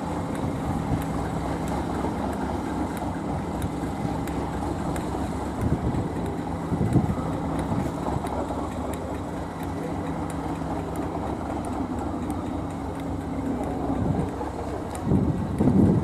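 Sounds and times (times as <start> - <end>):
train engine droning: 0.0 - 16.0
wind noise: 5.3 - 8.4, 13.8 - 16.0.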